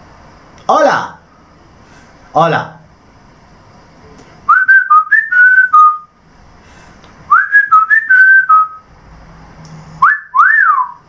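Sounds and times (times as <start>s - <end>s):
whistled tune: 4.5s - 6.1s, 7.3s - 8.9s, 10.0s - 11.0s.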